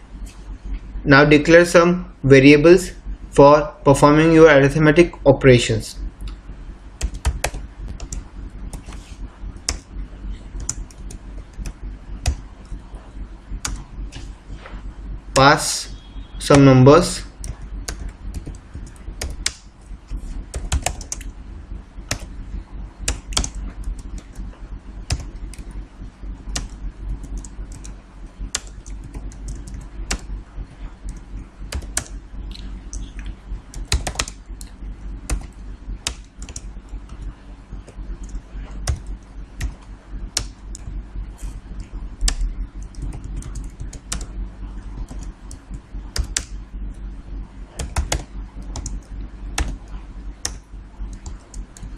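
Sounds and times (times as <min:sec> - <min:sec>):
steady low hum: 0:00.0 - 0:51.9
computer keyboard typing: 0:07.0 - 0:09.9, 0:10.5 - 0:12.8, 0:13.6 - 0:13.9, 0:16.5 - 0:21.4, 0:22.0 - 0:22.4, 0:23.0 - 0:25.8, 0:26.4 - 0:30.3, 0:31.0 - 0:41.0, 0:41.7 - 0:47.0, 0:47.7 - 0:51.9.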